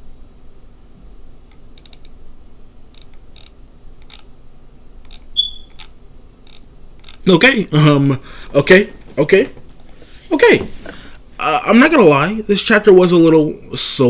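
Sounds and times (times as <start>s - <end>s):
low steady hum: 0.0s - 14.0s
computer mouse clicks: 1.5s - 2.2s, 2.9s - 4.3s, 5.0s - 7.2s, 9.8s - 10.0s
high beep: 5.4s - 5.8s.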